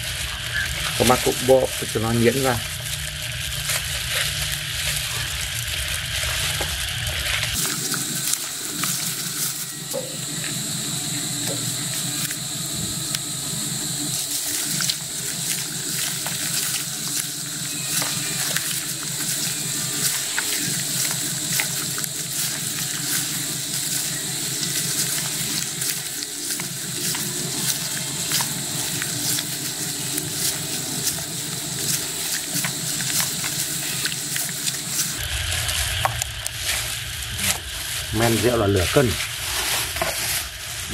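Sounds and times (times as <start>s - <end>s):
plastic gloves crinkling: 0.0s - 40.9s
steady hiss: 0.0s - 40.9s
wet squelching and sloshing: 11.0s - 40.9s.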